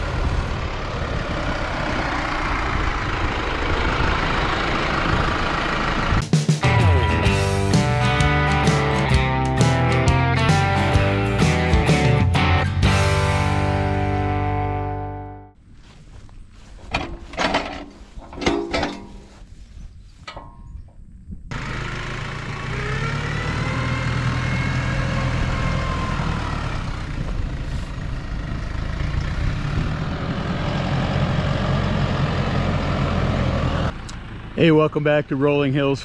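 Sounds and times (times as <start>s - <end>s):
tractor diesel engine: 0.0s - 36.0s
metal clanks and knocks: 16.8s - 19.5s, 20.2s - 21.1s.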